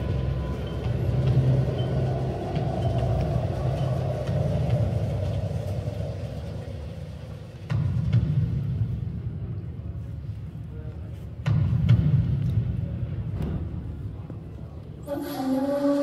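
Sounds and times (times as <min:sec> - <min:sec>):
deep rumbling dance music: 0:00.0 - 0:10.5.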